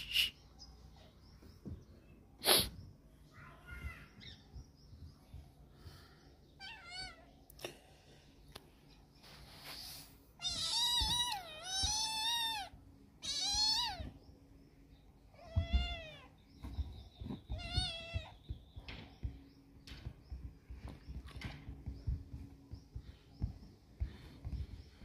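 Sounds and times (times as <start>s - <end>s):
kitten meowing: 10.4s - 14.1s.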